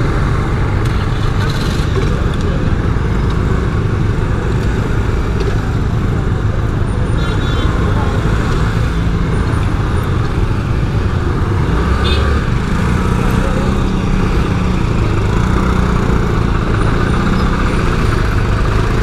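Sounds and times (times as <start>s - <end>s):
scooter engine low drone: 0.0s - 19.0s
surrounding motorbikes and cars: 0.0s - 19.0s.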